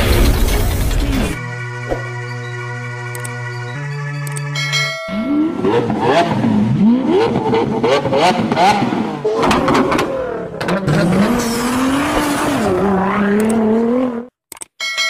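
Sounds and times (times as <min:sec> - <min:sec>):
car engine revving: 0:05.1 - 0:14.3.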